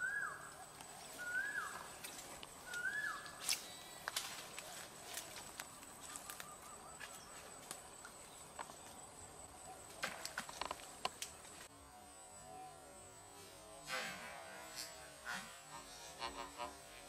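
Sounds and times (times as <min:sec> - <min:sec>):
rustling through undergrowth: 0:00.0 - 0:11.7.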